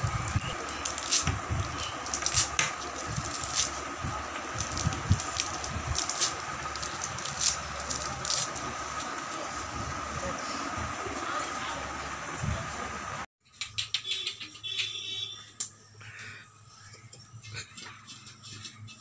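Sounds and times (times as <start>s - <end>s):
leafy rustling: 0.2s - 11.2s.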